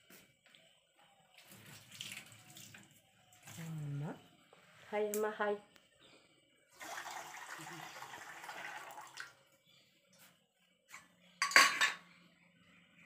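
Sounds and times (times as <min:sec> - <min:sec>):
steel utensils clattering: 0:11.4 - 0:12.0.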